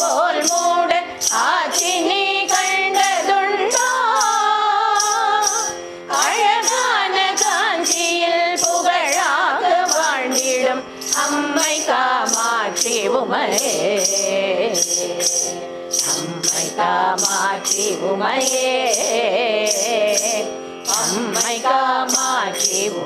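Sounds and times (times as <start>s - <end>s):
metal jingle beat: 0.0s - 23.0s
steady held tone: 0.0s - 23.0s
women singing together: 0.0s - 23.0s.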